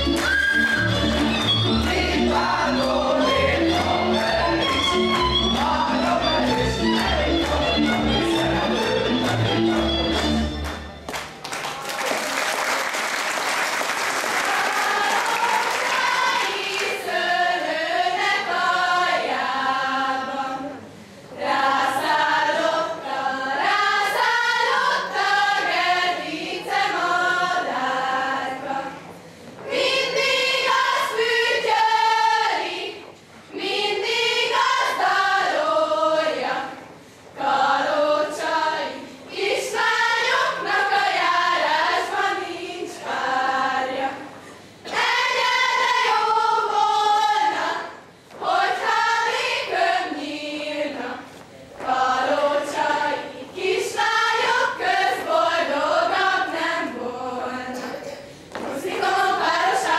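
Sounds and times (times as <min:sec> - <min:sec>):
girls singing unaccompanied: 0:01.0 - 0:09.9, 0:14.3 - 0:59.9
applause: 0:10.1 - 0:16.9.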